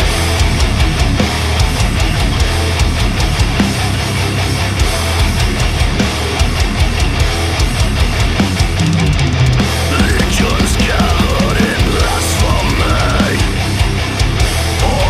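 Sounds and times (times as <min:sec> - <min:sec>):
distorted electric guitars: 0:00.0 - 0:15.0
drum kit: 0:00.0 - 0:15.0.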